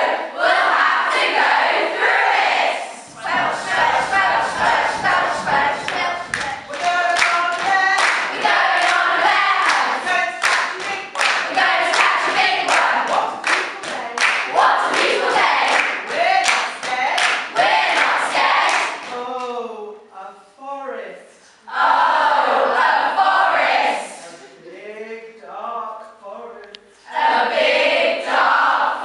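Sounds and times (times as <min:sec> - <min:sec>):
women chanting and singing: 0:00.0 - 0:17.0
hand claps: 0:04.6 - 0:19.6.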